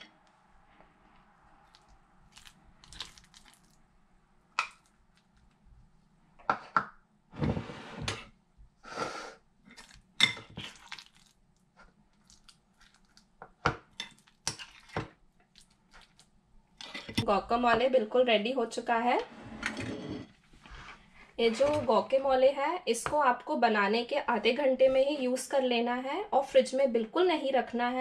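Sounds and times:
metal utensils scraping glass bowl: 0:19.3 - 0:20.3.

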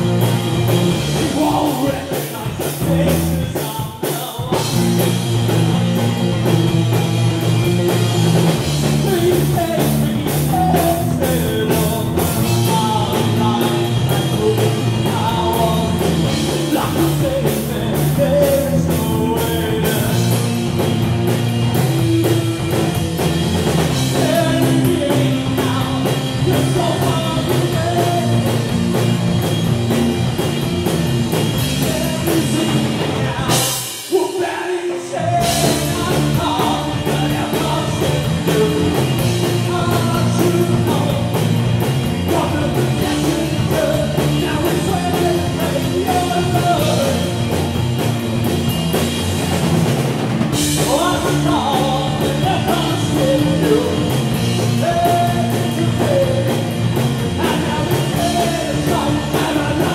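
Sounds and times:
bass guitar: 0:00.0 - 0:59.9
drum kit: 0:00.0 - 0:59.9
electric guitars: 0:00.0 - 0:59.9
man singing: 0:01.0 - 0:05.2, 0:08.6 - 0:20.7, 0:23.9 - 0:29.0, 0:31.6 - 0:47.5, 0:50.6 - 0:59.9.

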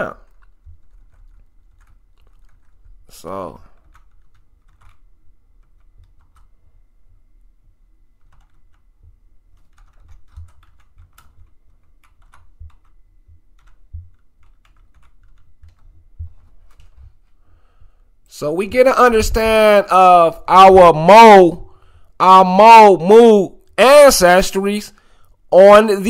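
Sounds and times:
typing on computer keyboard: 0:00.0 - 0:03.0, 0:03.8 - 0:06.5, 0:08.2 - 0:08.9, 0:09.5 - 0:17.0.

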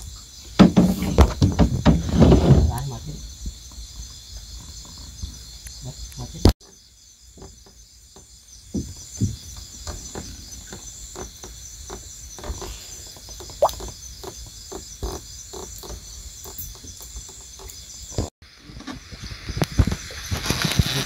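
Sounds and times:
high pulsing insect chorus: 0:00.0 - 0:21.0
short frog calls: 0:12.5 - 0:17.8.

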